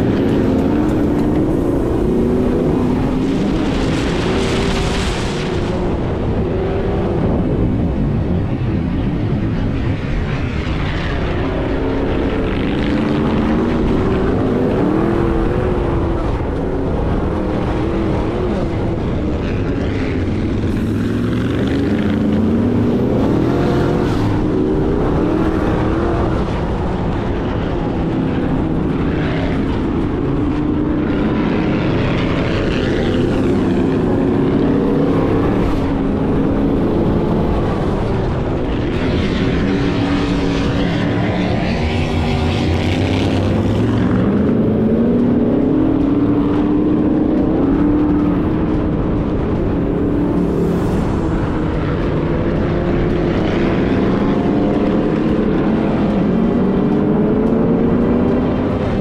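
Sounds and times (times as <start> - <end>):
continuous rushing noise: 0.0 - 59.0
engine revving: 0.0 - 59.0.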